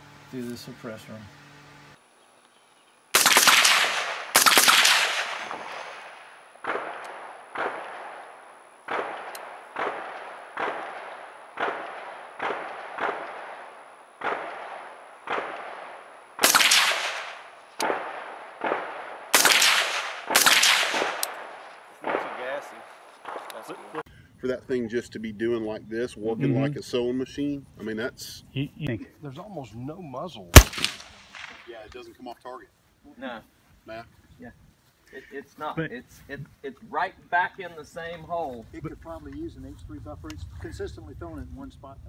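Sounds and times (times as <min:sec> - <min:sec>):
suppressed gunshots: 0:03.2 - 0:23.8, 0:30.5 - 0:31.8.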